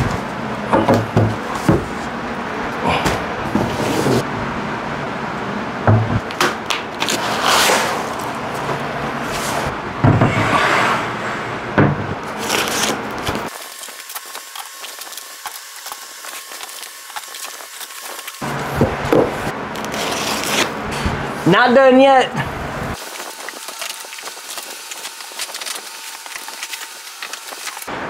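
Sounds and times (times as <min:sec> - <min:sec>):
cardboard and foam rustling: 0:07.0 - 0:09.7, 0:12.2 - 0:21.1, 0:22.9 - 0:27.9.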